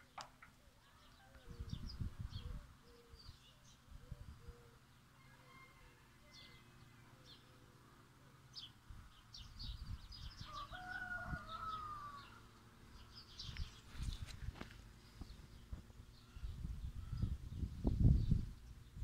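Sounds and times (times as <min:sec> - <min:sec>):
small birds chirping: 0:00.0 - 0:19.0
rooster crowing: 0:05.2 - 0:06.8, 0:10.4 - 0:12.5.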